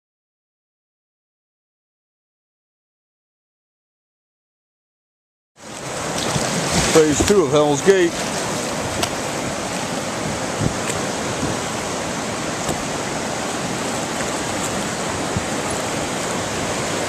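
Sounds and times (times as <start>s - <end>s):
river rapids rushing: 5.6s - 17.0s.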